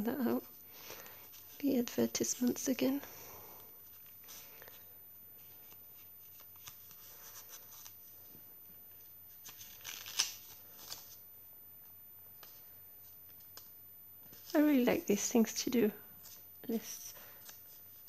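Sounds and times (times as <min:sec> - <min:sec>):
paper pages rustling and turning: 0:03.8 - 0:08.3, 0:08.9 - 0:11.2, 0:16.2 - 0:16.5, 0:17.2 - 0:18.0.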